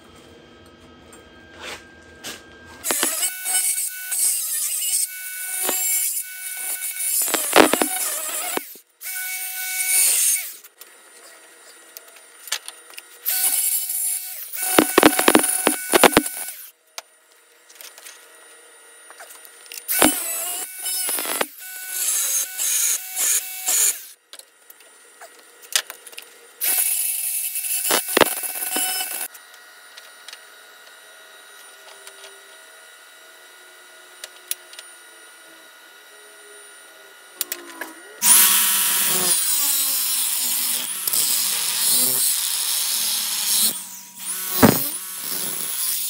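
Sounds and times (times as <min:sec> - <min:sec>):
angle grinder grinding steel: 0:02.8 - 0:10.7, 0:13.3 - 0:16.7, 0:19.9 - 0:24.1, 0:26.6 - 0:29.3, 0:37.5 - 0:46.0.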